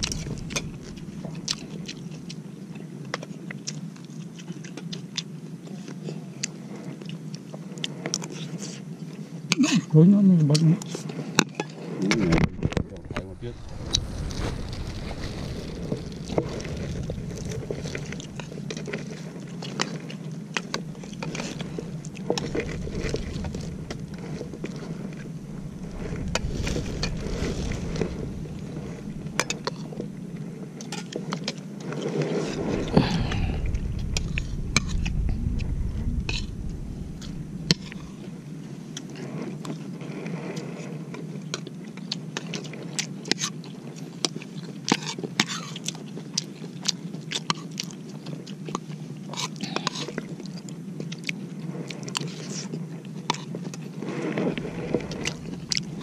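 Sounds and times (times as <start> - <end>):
low rumble: 0.0 - 2.8, 12.1 - 39.1, 54.2 - 56.0
chewing: 0.0 - 9.8, 41.5 - 56.0.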